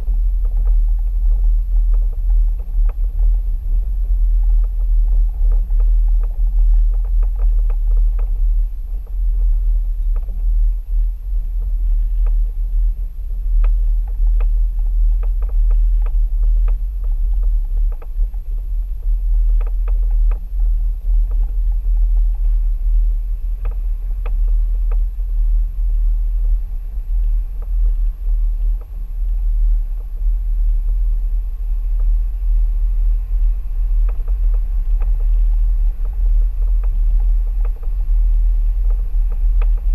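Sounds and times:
gravel clicks and knocks: 0.3s - 25.6s.

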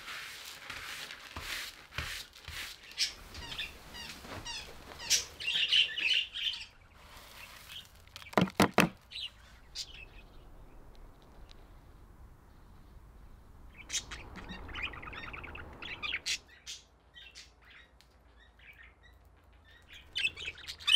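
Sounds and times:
brush sweeping into dustpan: 0.0s - 3.7s
dustpan knocking on plastic tub: 8.4s - 9.0s
budgerigars chirping: 13.8s - 17.9s.

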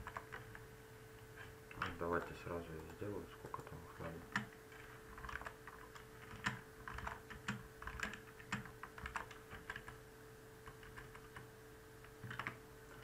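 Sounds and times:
typing on keyboard: 0.0s - 0.6s, 2.8s - 10.0s, 10.6s - 11.5s, 12.1s - 13.0s
faint steady hum: 0.0s - 13.0s.

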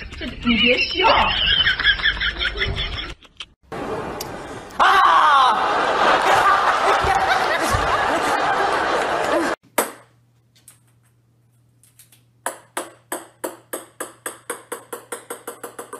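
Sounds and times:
voices and laughter: 5.6s - 9.6s
small ball bouncing on wooden floor: 12.4s - 15.9s.

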